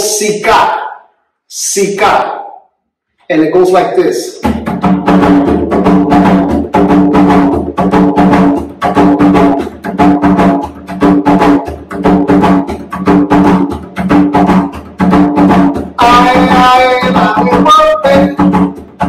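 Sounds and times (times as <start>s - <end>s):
hand drum rhythm: 4.3s - 19.0s.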